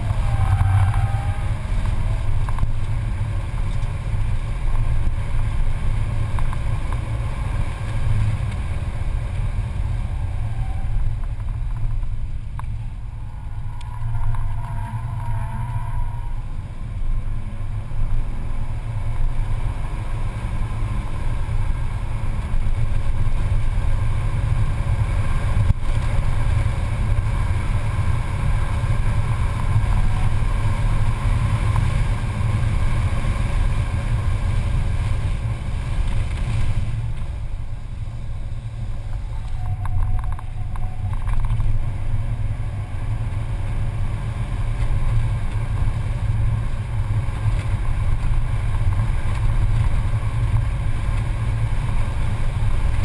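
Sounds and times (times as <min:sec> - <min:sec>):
car engine drone: 0:00.0 - 0:53.0
tyre and road rumble: 0:00.0 - 0:53.0.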